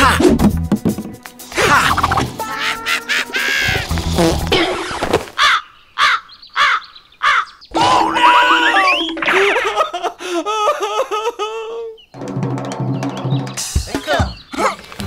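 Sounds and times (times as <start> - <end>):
wavering melodic cartoon music: 0.0 - 4.7, 7.7 - 15.0
cartoon crow caws: 5.4 - 8.8.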